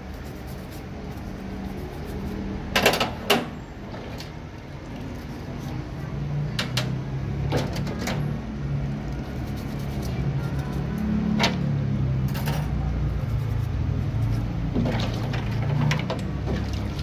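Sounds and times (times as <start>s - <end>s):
wet toothbrush scrubbing metal: 0.1s - 2.7s, 9.0s - 11.1s
splashing in soapy water: 14.8s - 17.0s.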